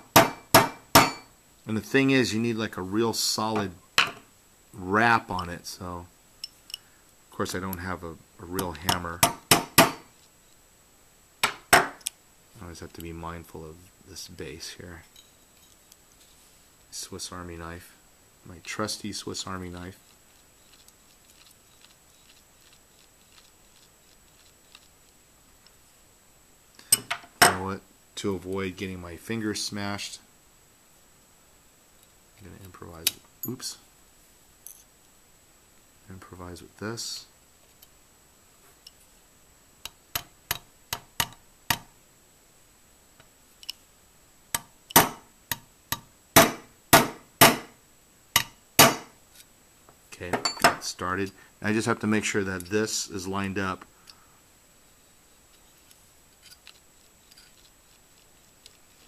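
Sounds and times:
small clicks of metal parts handled: 6.4 - 6.9, 15.1 - 16.0, 34.6 - 34.9, 43.2 - 43.8, 55.5 - 59.0
metal tapping on metal pin: 39.8 - 41.9.

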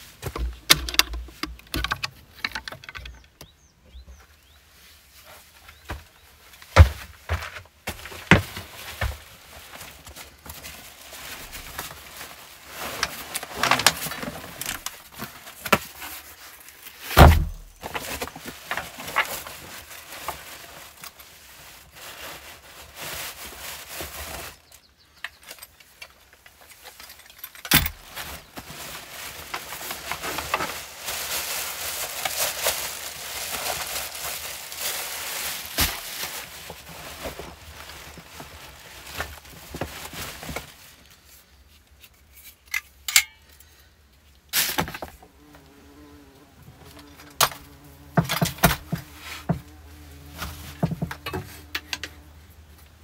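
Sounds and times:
rustles and knocks: 0.0 - 4.3, 5.6 - 21.2, 46.8 - 53.0
items thudding on wooden boards: 0.2 - 3.4, 6.7 - 9.3, 17.1 - 19.2, 47.3 - 52.2
plastic bag crinkling: 7.9 - 24.7, 26.2 - 41.2.

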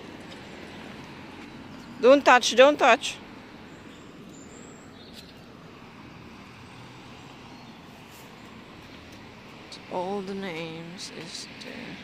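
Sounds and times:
distant road traffic hum: 0.0 - 12.0.

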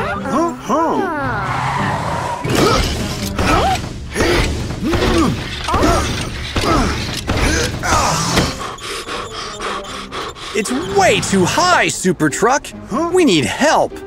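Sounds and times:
squeaky spring creak: 5.2 - 11.5.

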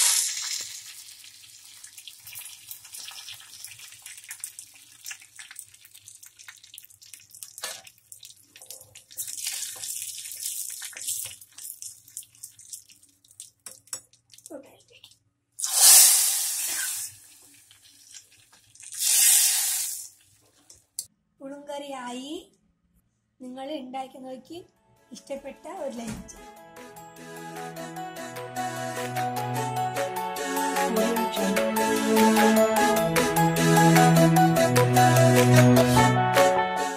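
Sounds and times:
oil popping: 0.0 - 14.5
spices sizzling in hot oil: 0.0 - 14.6, 15.6 - 20.8.

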